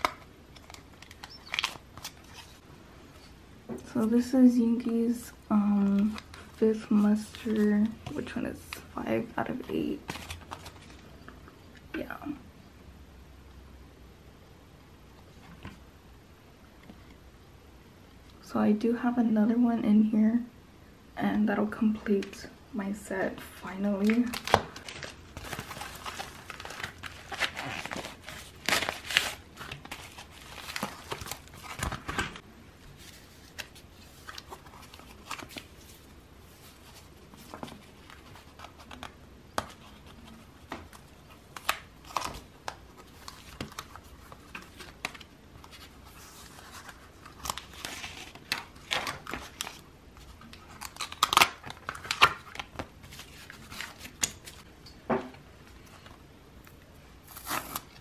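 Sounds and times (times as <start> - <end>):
packaging crinkling and rustling: 0.0 - 2.6, 10.0 - 11.1, 24.0 - 54.7.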